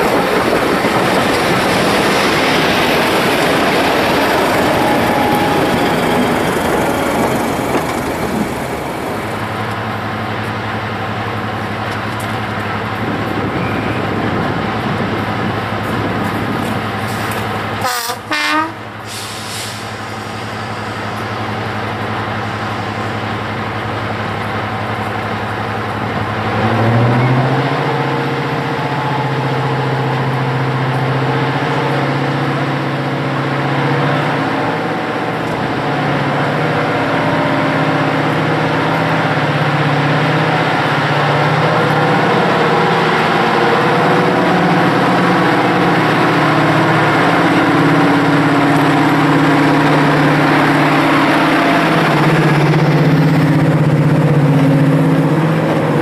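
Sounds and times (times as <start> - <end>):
diesel locomotive engine: 0.0 - 56.0
locomotive horn blast: 17.8 - 19.3.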